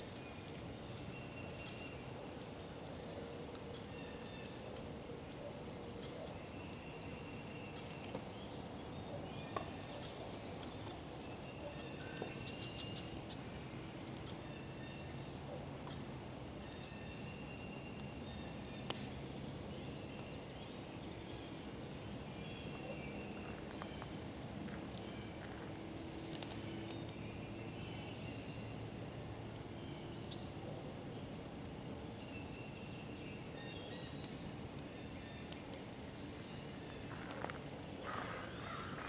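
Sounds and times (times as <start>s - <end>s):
campfire wood popping: 1.5s - 5.0s, 7.8s - 8.6s, 9.2s - 14.5s, 17.9s - 33.1s, 34.0s - 38.6s.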